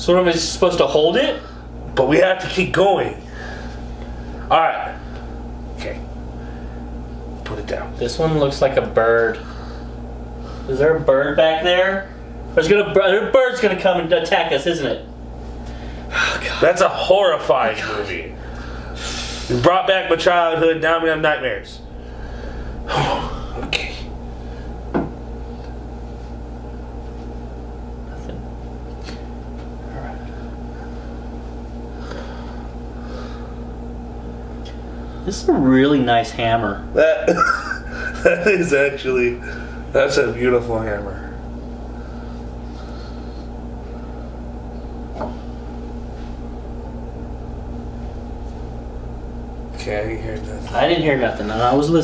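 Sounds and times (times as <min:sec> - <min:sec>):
steady low hum: 0:00.0 - 0:52.0
knock on tabletop: 0:24.9 - 0:25.2.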